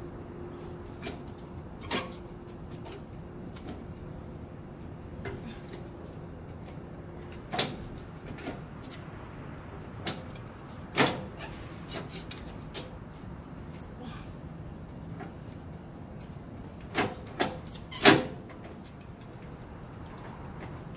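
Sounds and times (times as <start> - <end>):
steady low hum: 0.0 - 20.9
crank handle clicks and metal clunks: 6.6 - 9.0, 10.0 - 13.0, 16.7 - 19.6.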